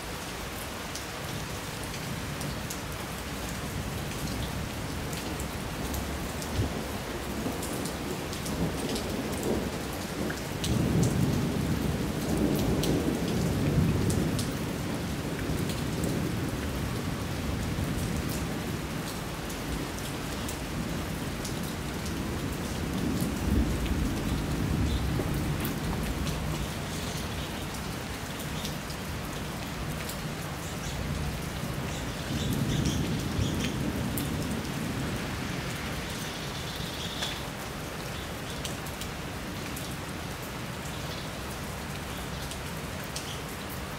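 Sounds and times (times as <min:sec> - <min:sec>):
heavy rain: 0:00.0 - 0:43.9
raindrops ticking: 0:18.0 - 0:34.7.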